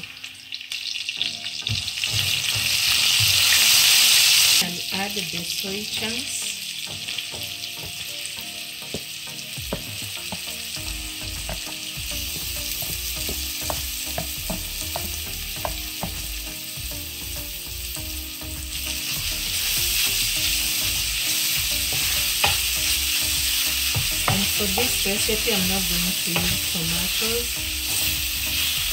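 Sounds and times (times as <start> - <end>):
food sizzling in hot oil: 0.0 - 28.9.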